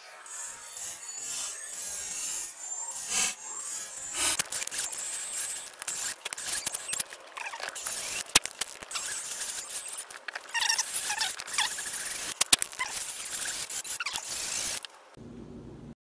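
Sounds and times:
metal-on-metal scraping: 0.3s - 14.9s
short squeaks: 3.9s - 14.9s
sharp clicks: 4.2s - 15.0s.

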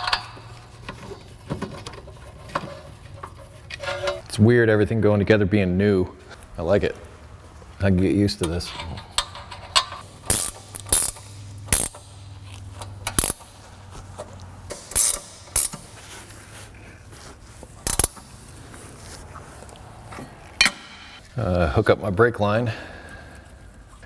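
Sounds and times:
hand ratchet clicking: 9.0s - 12.2s, 12.8s - 13.6s, 14.2s - 15.9s, 17.8s - 18.3s.

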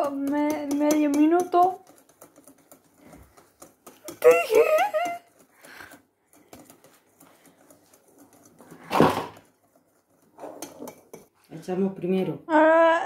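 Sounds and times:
spoon clicking in a bowl: 0.0s - 2.3s.

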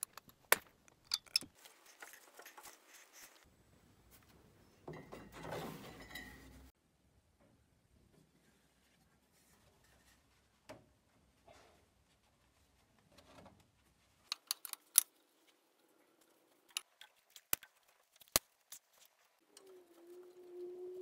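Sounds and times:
metal clicks and taps: 0.0s - 1.5s, 14.3s - 15.1s.

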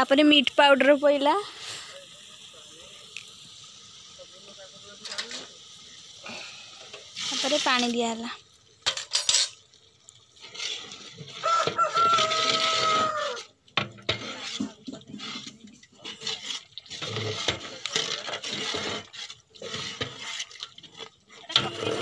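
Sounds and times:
ladle stirring curry in metal pot: 10.3s - 22.0s
rooster crowing: 11.4s - 13.5s.

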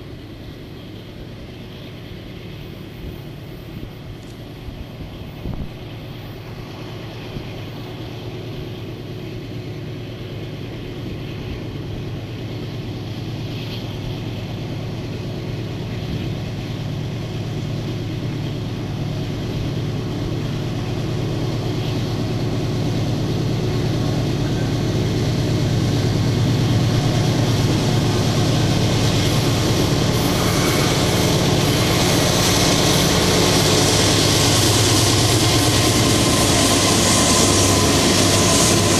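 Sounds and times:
diesel locomotive engines droning: 0.0s - 38.9s
rising hiss: 17.2s - 38.9s.

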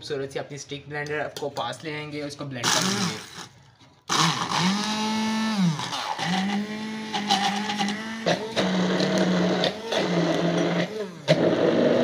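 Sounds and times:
stick blender motor hum: 2.6s - 3.5s, 4.1s - 12.0s.

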